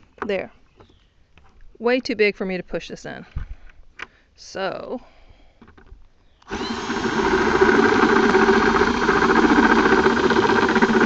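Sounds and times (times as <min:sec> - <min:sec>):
power drill grinding into plastic: 0:06.4 - 0:11.0.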